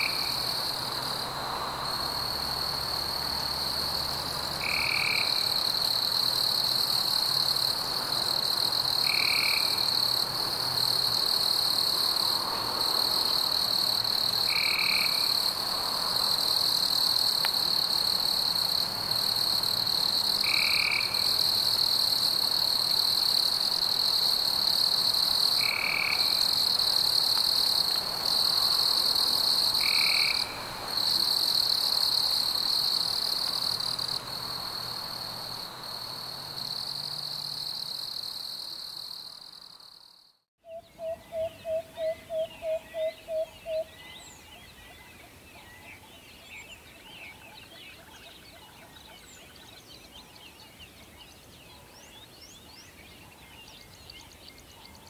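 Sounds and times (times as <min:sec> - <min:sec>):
high-pitched insect chorus: 0:00.0 - 0:40.3.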